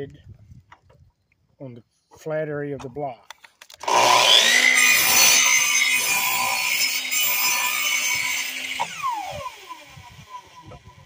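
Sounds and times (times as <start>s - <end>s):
miter saw cutting wood: 3.8s - 11.0s
saw blade winding down whine: 3.8s - 11.0s.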